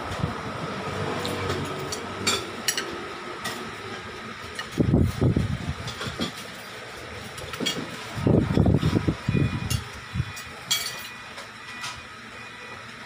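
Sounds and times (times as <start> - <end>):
cutlery clinking on plates: 10.7 - 11.1.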